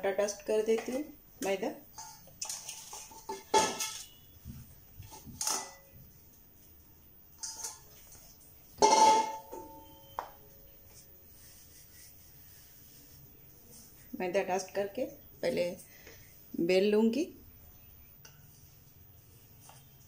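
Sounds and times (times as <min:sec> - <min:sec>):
metal bowl clanking and ringing: 0:08.8 - 0:10.2.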